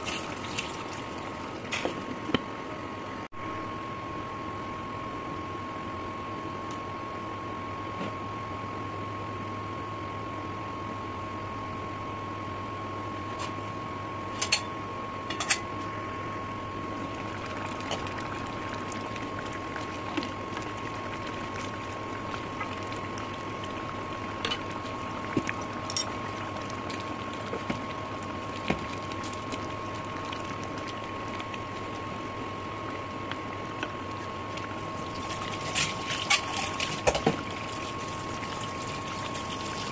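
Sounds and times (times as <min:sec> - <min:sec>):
steady hum with high whine: 0:00.0 - 0:39.9
curry simmering: 0:16.8 - 0:39.9.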